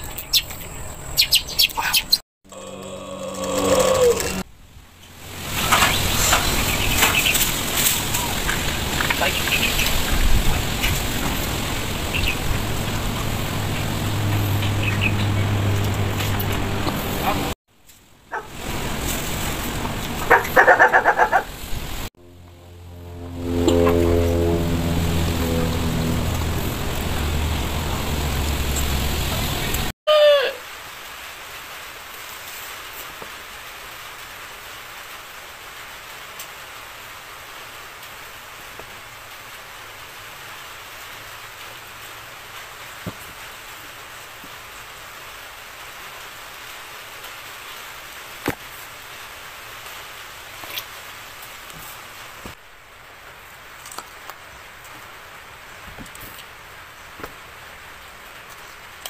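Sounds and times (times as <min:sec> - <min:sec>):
sliding tone: 0:22.2 - 0:29.8.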